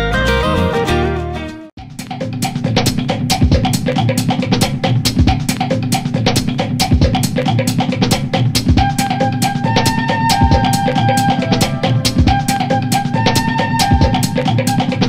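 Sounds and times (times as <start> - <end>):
drum kit beat: 0.0 - 15.0
held tones: 8.8 - 15.0.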